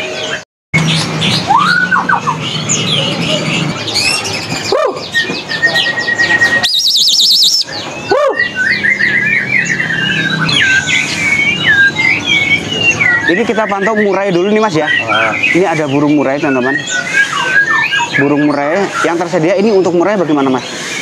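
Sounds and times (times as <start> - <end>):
songbirds singing: 0.0 - 21.0
fast warbling trill: 0.8 - 20.0
bird held whistle: 5.6 - 9.2.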